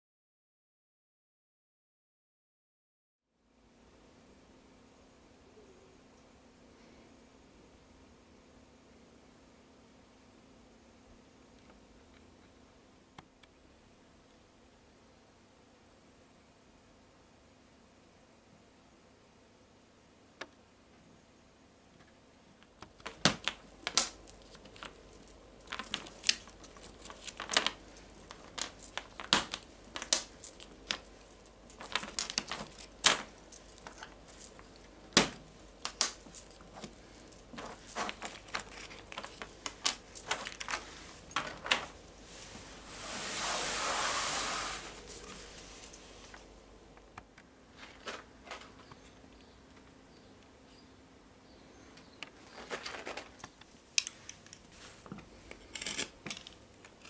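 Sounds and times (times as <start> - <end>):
plastic pieces clicking on table: 22.7 - 41.9
metal bangles clinking: 23.5 - 42.2
fabric rustling: 23.5 - 46.5.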